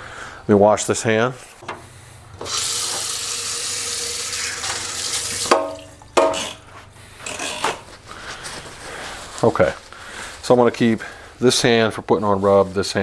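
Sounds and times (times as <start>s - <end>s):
tap water running over hand: 2.4s - 5.8s.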